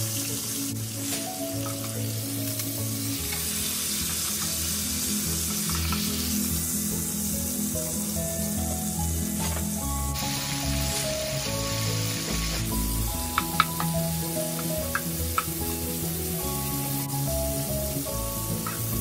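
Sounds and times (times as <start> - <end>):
background music: 0.0 - 19.0
steak sizzling in frying pan: 0.0 - 19.0.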